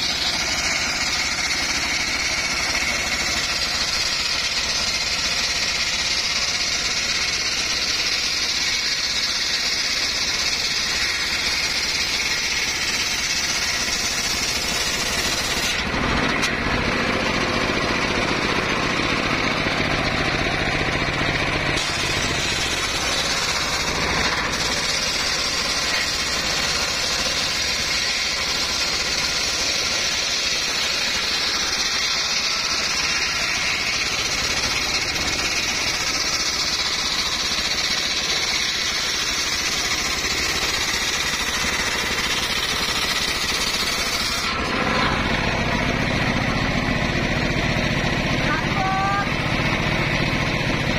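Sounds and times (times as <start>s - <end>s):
circular saw ripping wood: 0.0s - 50.5s
diesel engine running: 0.0s - 50.9s.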